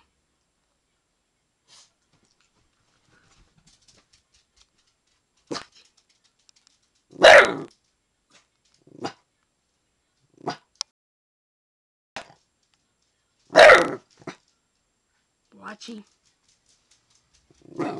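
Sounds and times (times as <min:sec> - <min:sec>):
young dog barking: 0:07.2 - 0:07.7, 0:13.5 - 0:14.0.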